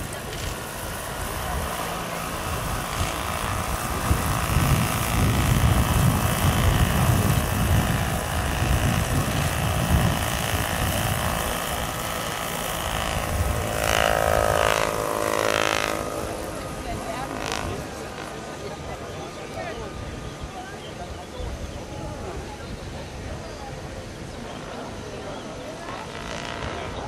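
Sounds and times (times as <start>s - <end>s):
electric motor whine: 0.0s - 21.0s
model helicopter rotor chop: 0.0s - 21.4s, 23.7s - 27.0s.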